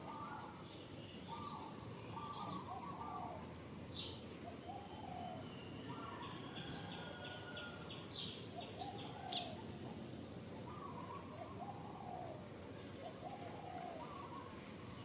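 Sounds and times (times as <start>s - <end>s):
birds calling: 0.0s - 9.9s, 10.7s - 14.6s
outdoor background hiss: 0.0s - 15.0s.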